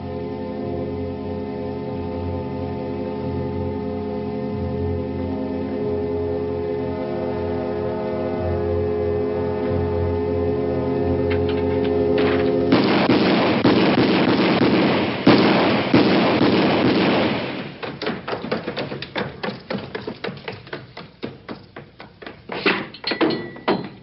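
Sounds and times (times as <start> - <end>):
music with held chords: 0.0 - 12.7
pistol shots: 12.2 - 18.8.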